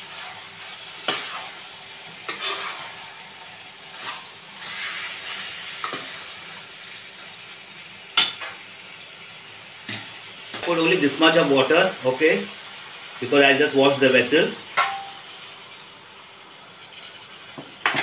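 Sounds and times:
chicken sizzling in a pot: 0:00.0 - 0:18.0
metal ladle scraping a pot: 0:02.3 - 0:02.9.

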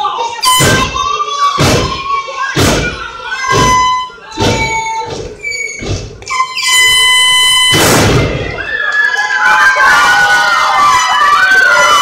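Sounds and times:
heavy thuds on wrestling mat: 0:01.6 - 0:02.0, 0:02.6 - 0:06.2.

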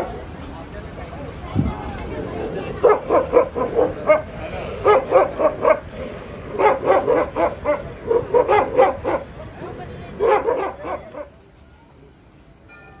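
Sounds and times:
dogs barking: 0:02.8 - 0:09.4, 0:10.1 - 0:11.4.

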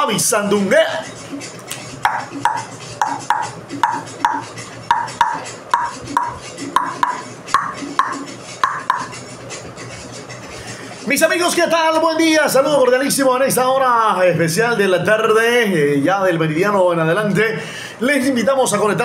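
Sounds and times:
hand percussion knocks: 0:02.0 - 0:09.1.

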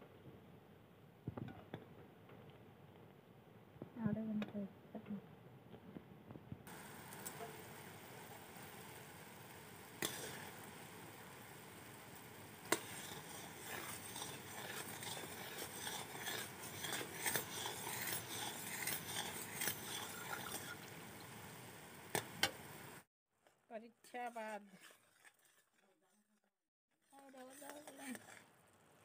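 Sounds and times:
syrup bubbling: 0:06.7 - 0:23.1, 0:24.2 - 0:26.3, 0:26.9 - 0:29.0
metal spatula scraping pan: 0:09.9 - 0:10.6, 0:12.6 - 0:20.9, 0:24.0 - 0:26.2, 0:27.0 - 0:28.5.

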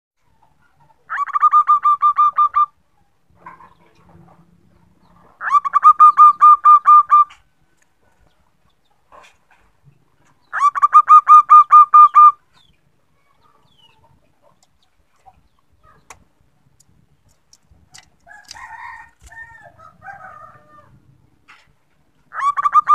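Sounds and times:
dove cooing: 0:22.3 - 0:22.9.

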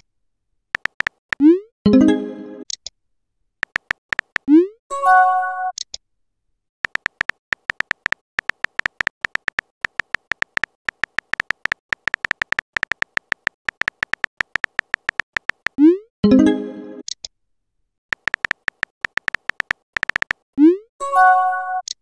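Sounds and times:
phone keyboard typing clicks: 0:00.8 - 0:01.5, 0:03.6 - 0:04.5, 0:06.8 - 0:15.8, 0:18.1 - 0:20.4.

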